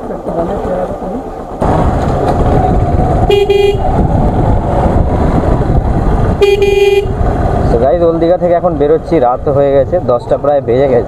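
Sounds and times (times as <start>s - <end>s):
motorcycle engine rumble: 0.0s - 11.0s
wind noise: 1.6s - 10.4s
horn beeps: 3.3s - 3.9s, 6.4s - 7.2s.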